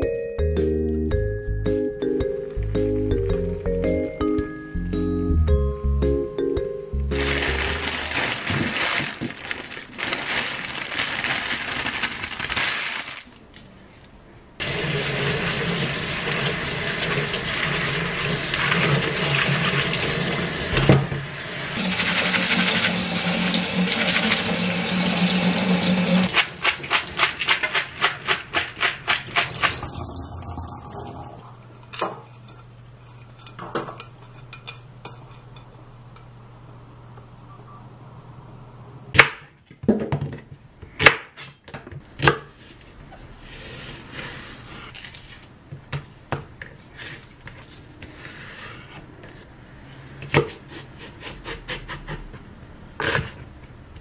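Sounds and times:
sprouts rinsed by hand: 7.2s - 13.4s, 14.6s - 20.9s, 21.6s - 31.2s
tap water running: 14.6s - 27.8s, 29.2s - 31.4s.

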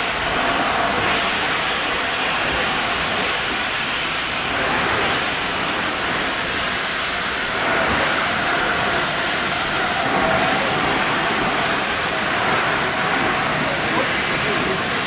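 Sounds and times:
steam locomotive hissing: 0.0s - 15.0s.

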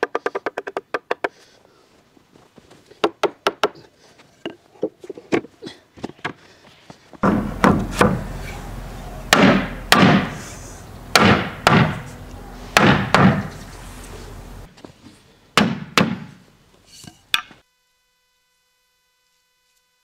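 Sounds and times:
wooden boards knocking: 7.2s - 8.3s, 9.3s - 10.4s, 11.1s - 12.1s, 12.8s - 13.6s.

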